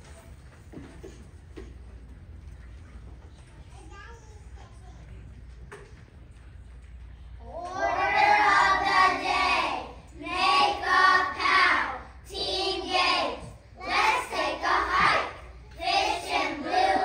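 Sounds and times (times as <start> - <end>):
children singing in unison: 7.6 - 17.0.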